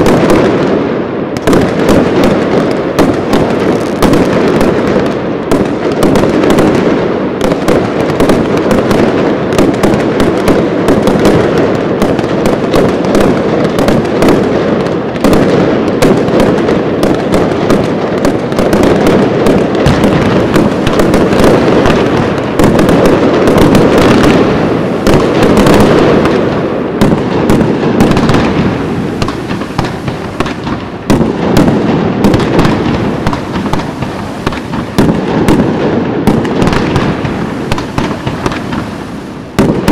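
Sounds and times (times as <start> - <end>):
fireworks cracks and bangs: 0.0 - 39.9.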